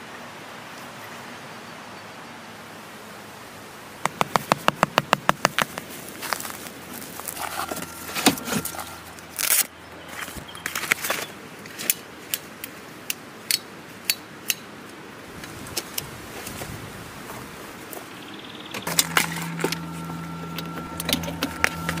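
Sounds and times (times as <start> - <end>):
camping gear clicking and clinking: 4.1 - 12.8.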